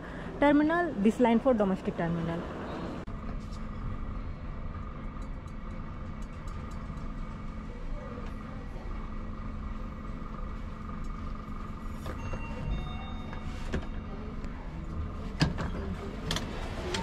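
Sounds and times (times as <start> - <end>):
lift running hum: 0.0 - 17.0
lift doors sliding open: 11.9 - 14.3, 14.9 - 17.0.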